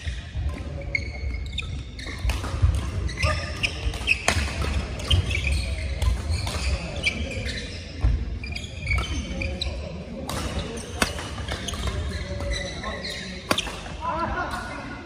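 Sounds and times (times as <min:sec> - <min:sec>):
shoes squeaking on court: 0:00.0 - 0:14.0
racket hitting shuttlecock: 0:02.1 - 0:05.2, 0:10.2 - 0:14.7.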